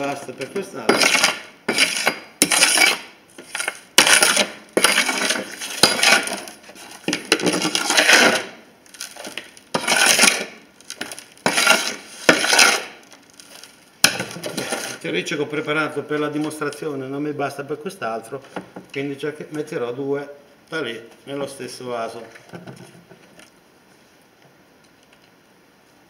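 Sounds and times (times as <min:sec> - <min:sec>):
scoop scraping soil: 0:00.9 - 0:08.6, 0:09.2 - 0:13.0, 0:14.4 - 0:15.0.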